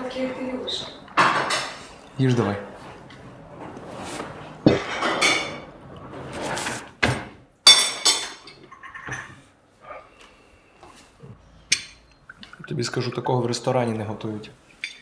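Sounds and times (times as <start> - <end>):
dishes clinking: 1.1 - 1.9, 4.7 - 5.7, 7.6 - 9.4, 11.7 - 13.3, 14.8 - 15.0
crockery and cutlery clattering: 1.1 - 2.5, 4.7 - 5.7, 7.7 - 9.4.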